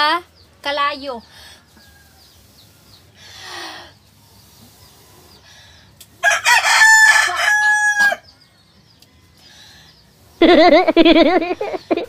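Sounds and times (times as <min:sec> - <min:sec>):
rooster crowing: 0:06.2 - 0:08.3.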